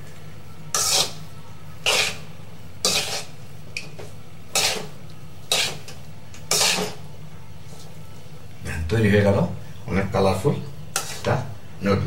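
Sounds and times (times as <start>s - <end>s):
spatula scraping metal pan: 0.7s - 1.2s, 1.8s - 2.2s, 2.8s - 3.4s, 4.5s - 4.9s, 5.5s - 7.0s, 10.9s - 11.3s.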